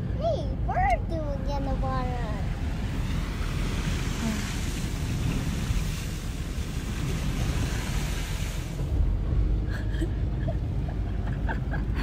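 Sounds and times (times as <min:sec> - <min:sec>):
low road rumble: 0:00.0 - 0:12.0
tyres hissing on wet road: 0:02.2 - 0:10.1.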